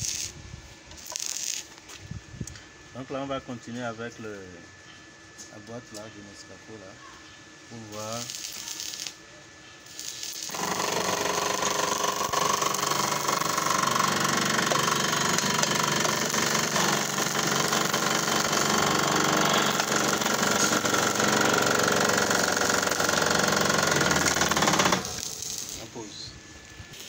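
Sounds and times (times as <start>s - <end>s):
electric motor running: 7.8s - 9.2s, 9.8s - 27.0s.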